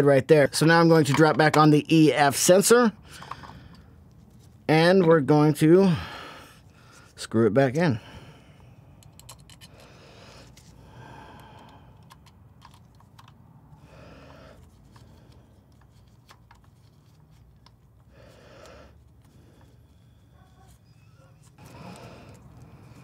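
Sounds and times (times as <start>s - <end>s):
gloved hands rustling: 14.0s - 23.0s.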